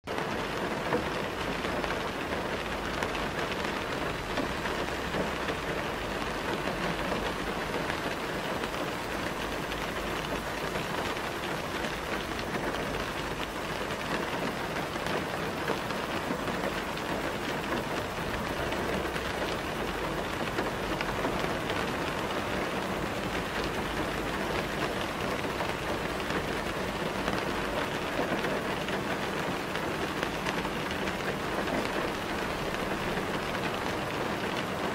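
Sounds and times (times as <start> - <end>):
steady rain hiss: 0.1 - 34.9.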